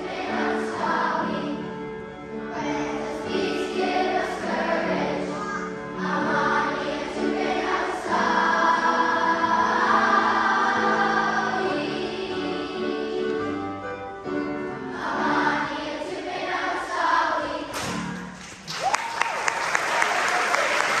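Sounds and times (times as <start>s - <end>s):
children's choir singing: 0.0s - 18.4s
audience applause: 18.4s - 21.0s.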